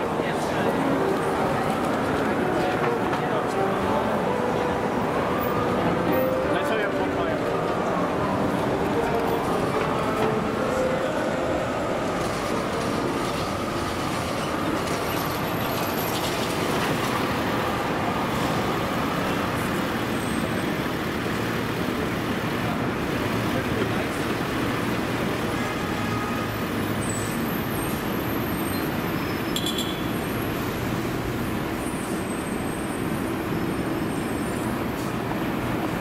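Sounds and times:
rumble of passing traffic: 0.0s - 36.0s.

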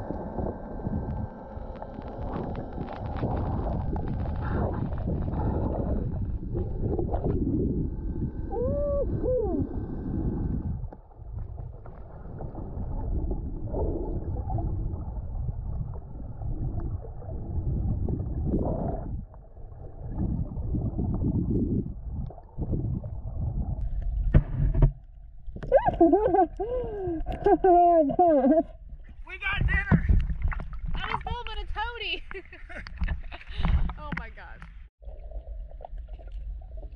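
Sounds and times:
muffled gliding tone: 0.0s - 26.2s
underwater rumble and sloshing: 0.0s - 36.9s.

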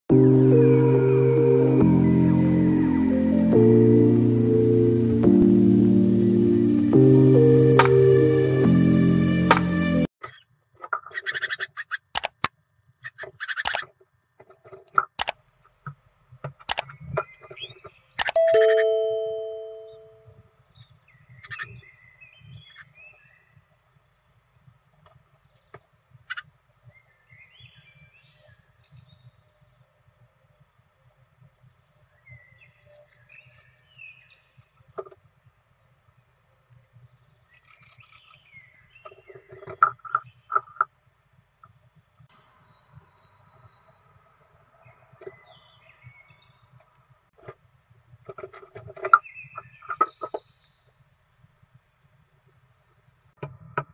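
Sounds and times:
sharp irregular clicks: 12.1s - 12.5s, 13.2s - 16.9s, 18.2s - 18.4s.

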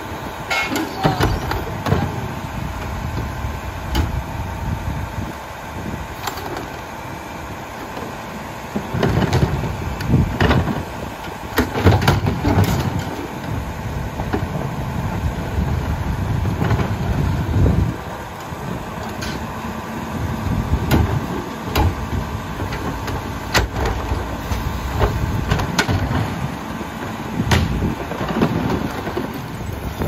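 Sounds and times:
garbage truck engine idling: 0.0s - 30.0s
trash tumbling: 20.7s - 30.0s.

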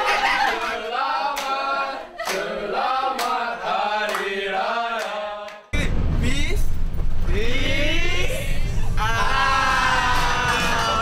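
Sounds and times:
group singing a cappella: 0.0s - 5.8s, 8.4s - 11.0s.

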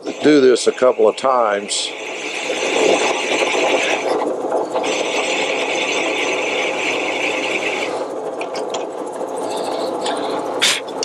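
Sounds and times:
drill bit cutting metal: 0.0s - 4.2s, 4.8s - 8.0s
drill press running: 0.0s - 10.6s.

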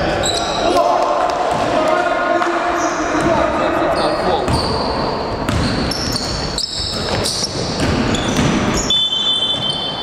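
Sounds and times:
sneakers squeaking: 0.1s - 0.8s, 2.7s - 10.0s
basketball bouncing on hardwood: 5.5s - 6.2s, 7.1s - 8.8s.

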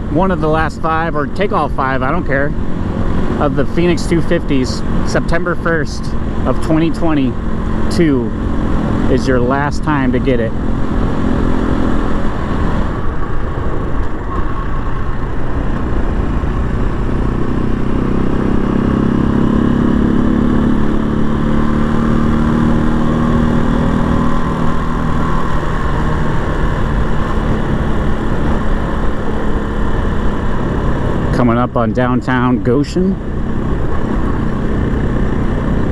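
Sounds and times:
motorcycle engine running: 0.0s - 35.9s
wind and road noise: 0.0s - 35.9s.

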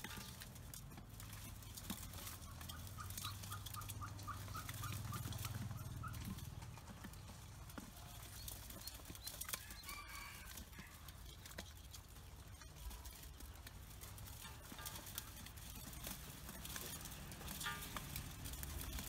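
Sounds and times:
beaks pecking a metal bowl: 0.0s - 19.0s
ducklings peeping: 1.2s - 10.3s.

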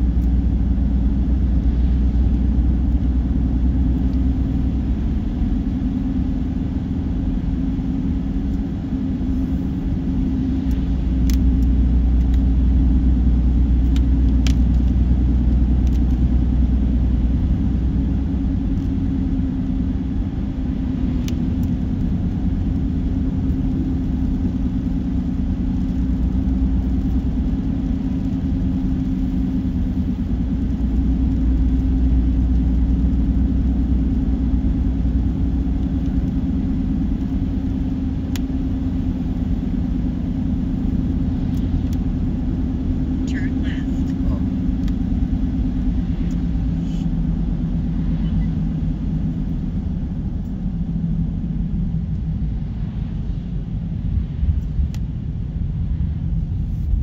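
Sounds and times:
car driving on highway: 0.0s - 57.0s.

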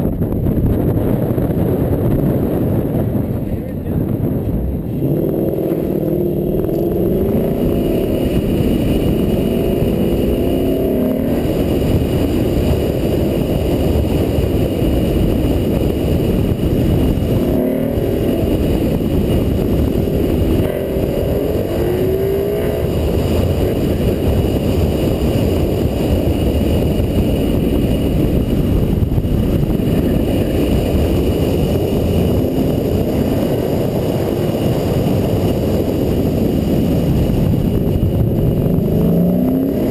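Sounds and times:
car engine revving: 0.2s - 39.9s.

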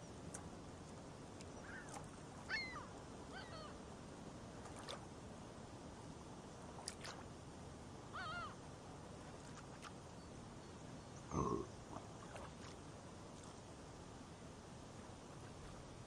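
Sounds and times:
short bird calls: 1.6s - 3.8s.

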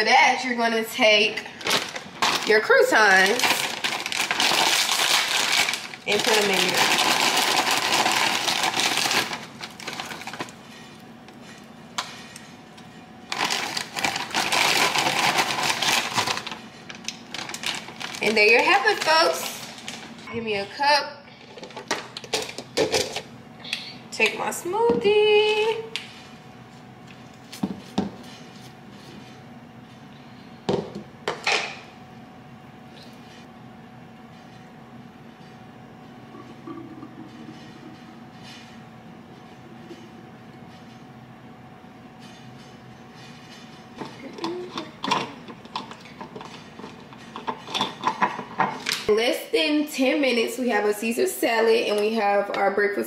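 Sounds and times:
croutons rattling into a bowl: 1.6s - 10.5s, 13.3s - 16.6s.

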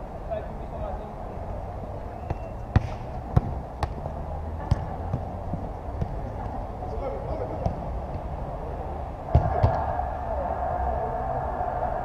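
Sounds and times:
football being kicked: 2.2s - 4.0s, 4.6s - 6.6s, 9.3s - 9.8s.

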